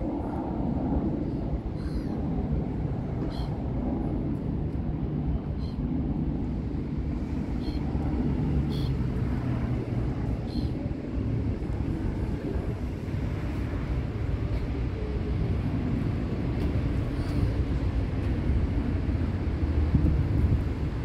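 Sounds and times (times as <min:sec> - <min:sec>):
wind buffeting the microphone: 0:00.0 - 0:21.0.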